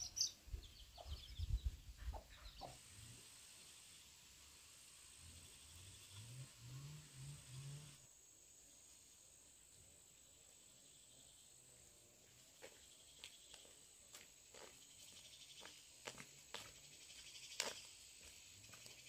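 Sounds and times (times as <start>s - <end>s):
footsteps on dirt path: 12.4s - 19.0s.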